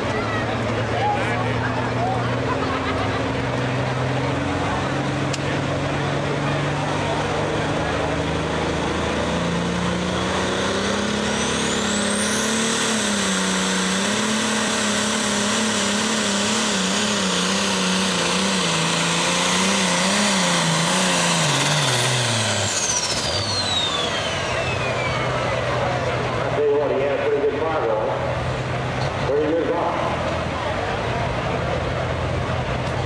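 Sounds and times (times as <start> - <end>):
diesel tractor engine at full power: 0.0 - 33.0
high turbo whistle: 22.4 - 25.4.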